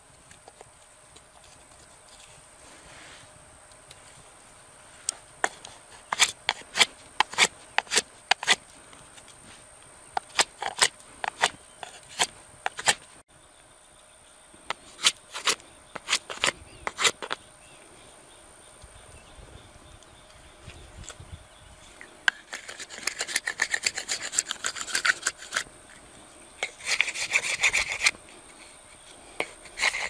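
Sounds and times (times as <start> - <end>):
knife scraping wood: 5.4 - 9.6, 10.2 - 13.1, 14.7 - 17.4, 22.3 - 26.0, 26.6 - 30.0.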